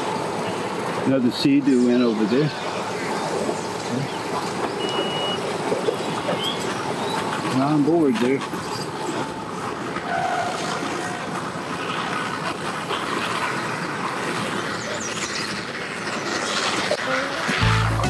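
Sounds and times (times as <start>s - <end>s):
boat motors rumbling: 0.0s - 18.0s.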